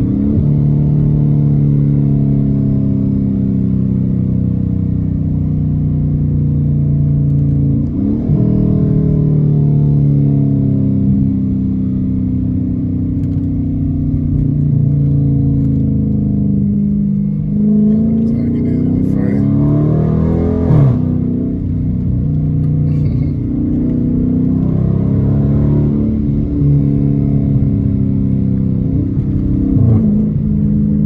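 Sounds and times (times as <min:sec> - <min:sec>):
car engine exhaust note from inside: 0:00.0 - 0:31.0.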